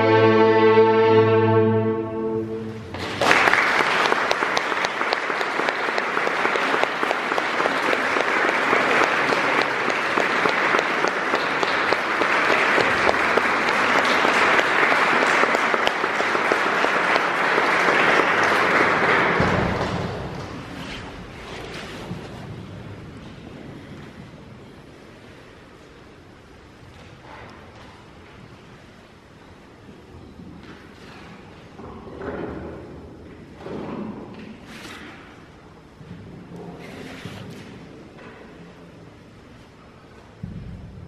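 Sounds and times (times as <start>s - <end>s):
audience applauding: 2.9s - 20.7s.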